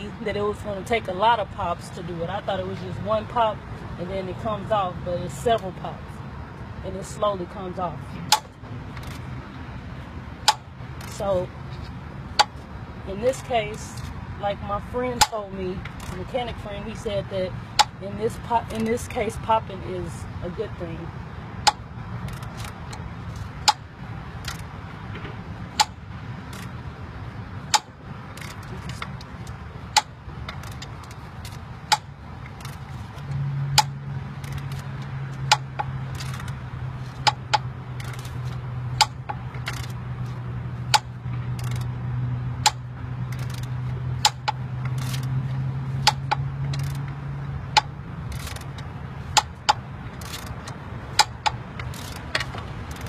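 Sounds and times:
ratchet tightening: 21.6s - 24.8s, 25.7s - 26.8s, 27.6s - 42.0s, 42.6s - 53.0s
metallic pops and clicks: 24.4s - 26.7s, 27.7s - 32.8s, 40.9s - 41.9s, 42.6s - 45.3s, 46.0s - 53.0s.

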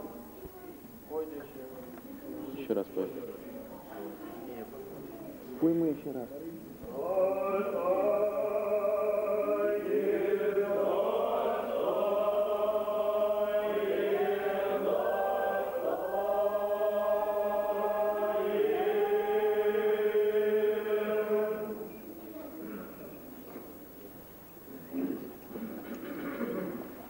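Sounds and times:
church choir chanting: 6.9s - 22.0s.

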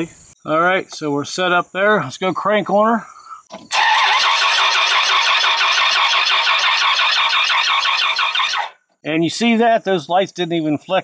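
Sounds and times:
engine cranking without starting: 3.5s - 8.8s.

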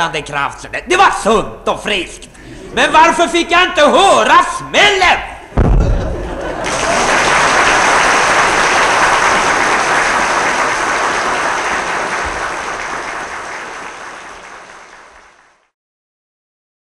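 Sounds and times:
audience applause: 6.2s - 15.7s.

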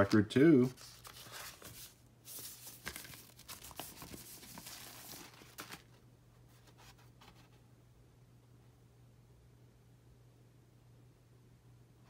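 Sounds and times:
paper sleeve rustling: 0.0s - 7.6s.

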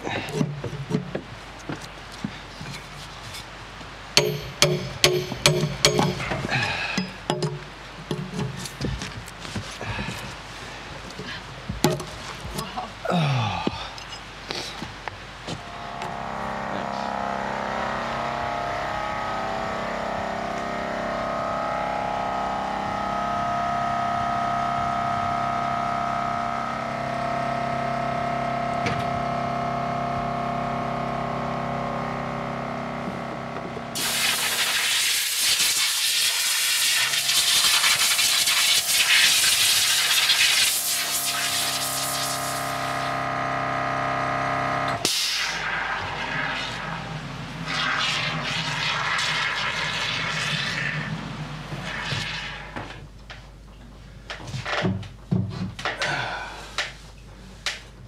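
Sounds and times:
music of long held chords: 15.6s - 31.2s
spray foam can hissing: 34.0s - 43.1s.

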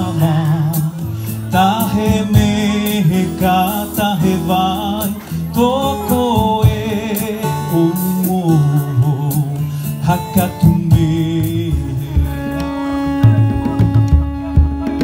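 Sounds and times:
person singing into microphone: 0.0s - 15.0s
plucked strings: 0.0s - 15.0s.

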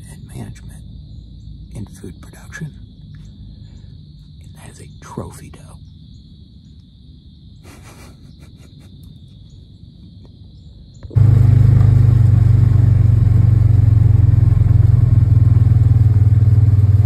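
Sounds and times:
faint low rumble: 10.1s - 17.0s
motor humming loudly: 11.2s - 17.0s.

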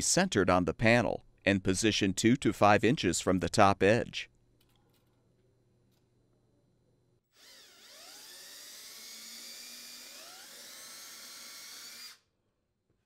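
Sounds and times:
cordless drill boring into wood: 7.4s - 12.2s.

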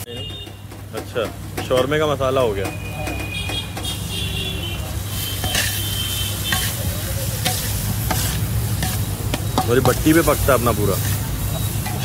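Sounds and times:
faint sizzling: 3.8s - 12.0s
metal spatula scraping iron pan: 5.0s - 12.0s.

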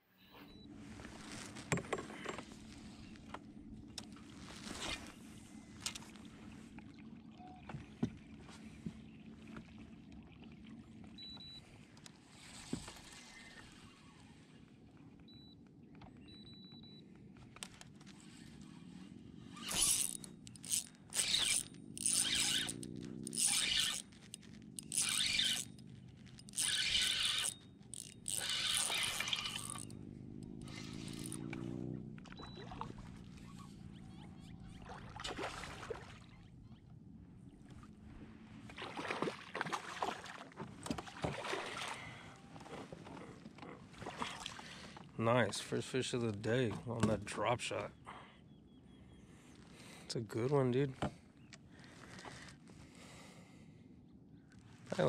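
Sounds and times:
fishing reel buzzing: 18.8s - 31.6s
water splashing: 32.3s - 33.5s, 34.7s - 36.4s, 38.6s - 42.3s.

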